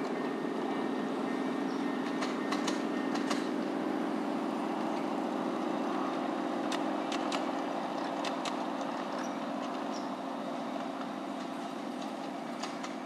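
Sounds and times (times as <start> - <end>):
miniature locomotive running: 0.0 - 13.0
sharp clicks: 2.0 - 3.5, 6.7 - 8.9.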